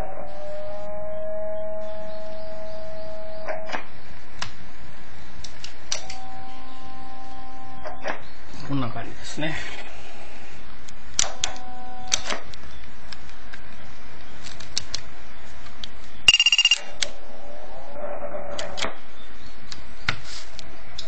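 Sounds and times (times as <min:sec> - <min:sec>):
rapid high-pitched beeps: 0:16.3 - 0:16.8.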